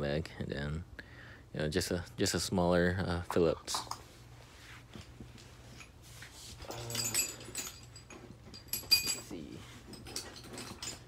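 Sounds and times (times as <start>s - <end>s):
metal hand tools clinking: 6.6s - 11.0s.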